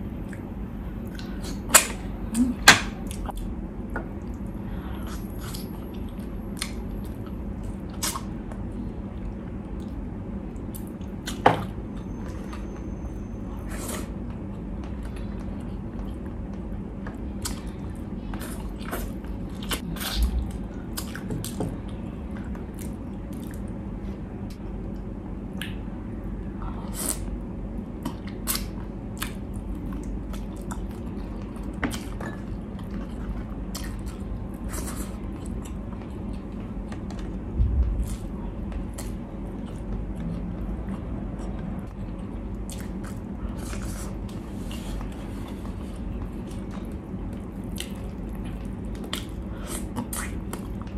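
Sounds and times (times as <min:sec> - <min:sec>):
steady low hum: 0:00.0 - 0:50.9
chewing and biting food: 0:28.0 - 0:50.9.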